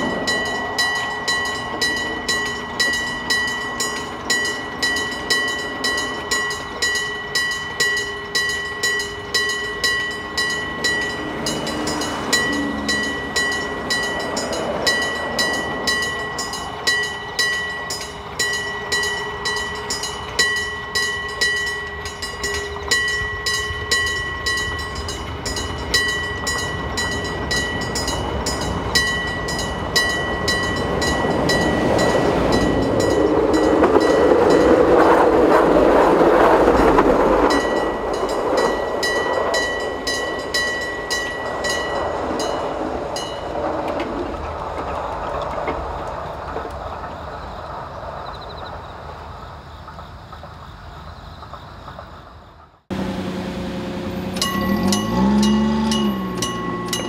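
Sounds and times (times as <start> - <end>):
level crossing bell ringing: 0.0 - 34.8, 54.3 - 57.0
train rumbling over crossing: 0.0 - 57.0.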